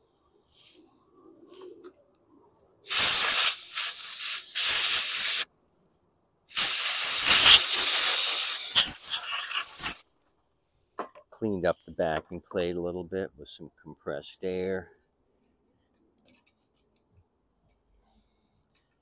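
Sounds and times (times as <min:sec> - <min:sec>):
compressed air blow gun hissing: 0:02.8 - 0:05.5, 0:06.5 - 0:10.0.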